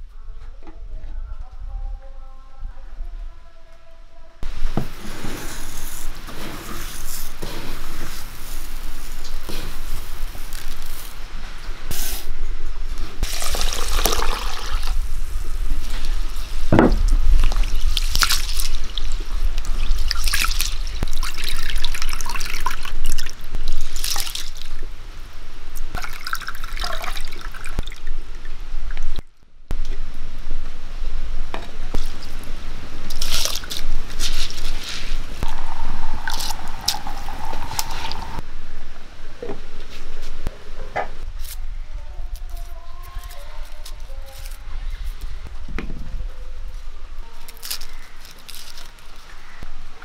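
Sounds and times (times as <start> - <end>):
dry rice grains rustling: 4.5 - 21.0, 33.0 - 38.4, 42.3 - 45.4, 46.7 - 49.6
rice swishing in water: 33.1 - 38.4.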